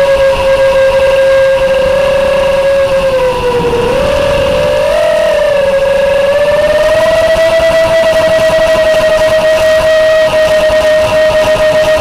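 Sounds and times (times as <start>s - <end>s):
drone motors whining: 1.4s - 11.0s.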